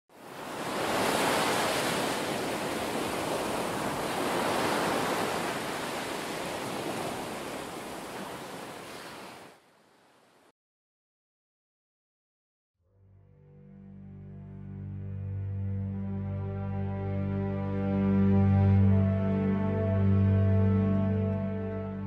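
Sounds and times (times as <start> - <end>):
ocean surf rushing: 0.1 - 9.6.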